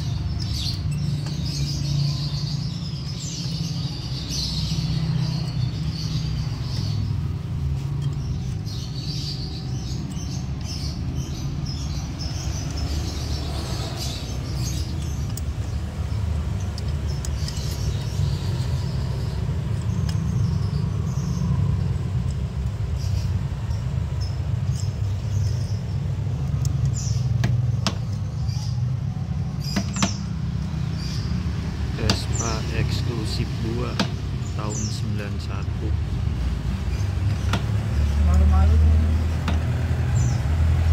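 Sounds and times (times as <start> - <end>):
small birds chirping: 0.0 - 40.9.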